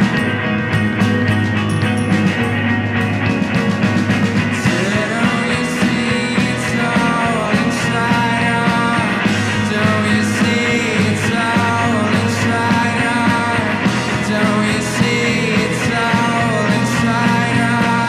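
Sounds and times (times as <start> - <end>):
live rock band playing: 0.0 - 18.0
man singing: 4.6 - 18.0.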